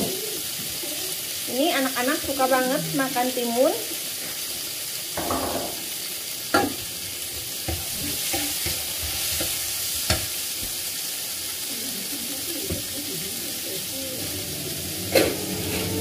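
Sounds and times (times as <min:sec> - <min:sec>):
vegetables sizzling in a frying pan: 0:00.0 - 0:16.0
utensils knocking against a pan: 0:05.2 - 0:05.8.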